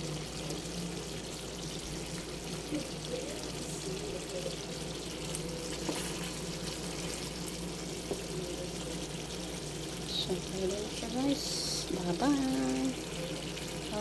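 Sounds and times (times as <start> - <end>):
sauce bubbling and sizzling in a pan: 0.0 - 14.0.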